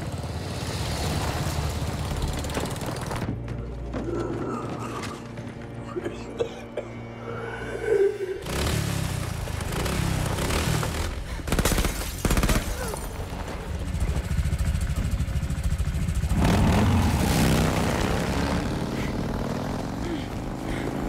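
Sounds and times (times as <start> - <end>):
motorcycle engine throbbing: 13.7 - 21.0.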